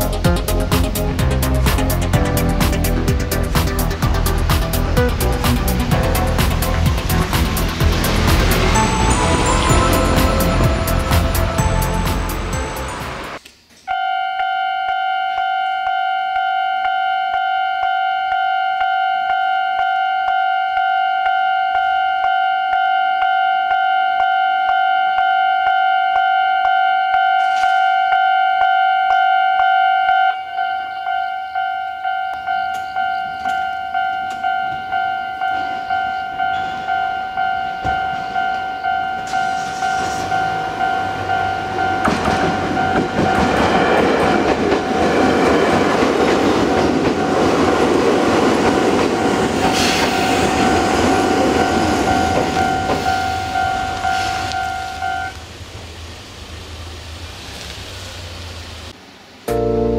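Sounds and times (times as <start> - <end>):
train passing: 0.0 - 13.4, 21.7 - 59.9
level crossing warning bell: 7.6 - 45.8, 49.1 - 55.4.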